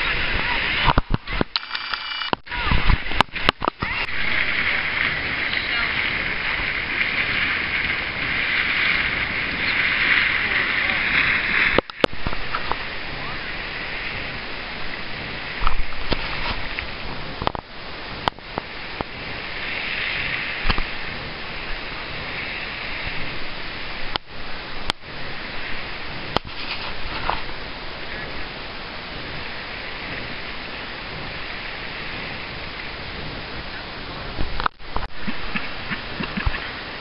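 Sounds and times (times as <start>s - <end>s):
sharp clicks: 0.9s - 2.5s.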